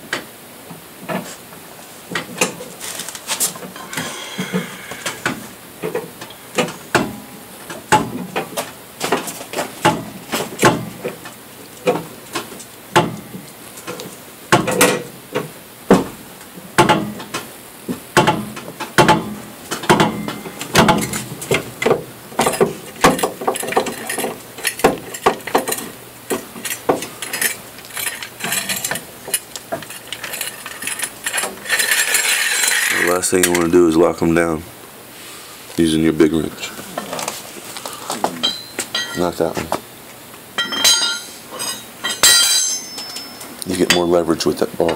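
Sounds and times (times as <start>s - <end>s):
metal tools clinking on car wheel: 19.9s - 33.8s, 38.4s - 39.4s, 40.6s - 44.2s.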